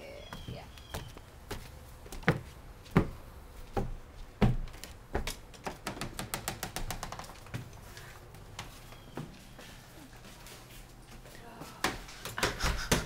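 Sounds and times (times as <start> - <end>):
footsteps on wooden boards: 0.3 - 6.2.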